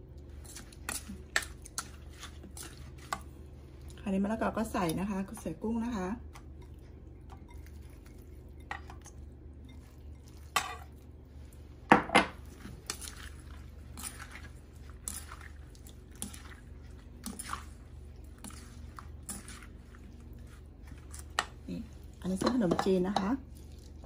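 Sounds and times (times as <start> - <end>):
wet squishing: 12.5 - 22.3, 23.4 - 24.0
spoon clinking on bowls: 22.4 - 23.4.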